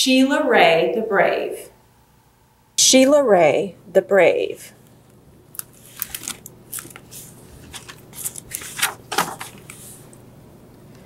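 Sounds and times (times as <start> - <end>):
plastic book jacket crinkling: 5.5 - 10.1
pages rustling: 5.6 - 10.2.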